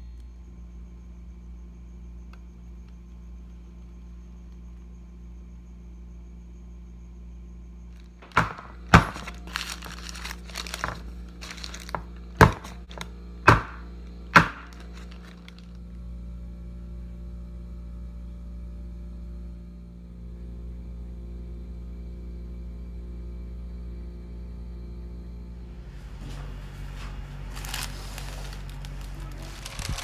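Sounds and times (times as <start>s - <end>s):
cake pan knocked on wooden table: 8.2s - 9.3s, 12.4s - 13.8s
parchment paper crinkling: 8.2s - 13.1s, 14.4s - 15.8s, 27.4s - 30.0s.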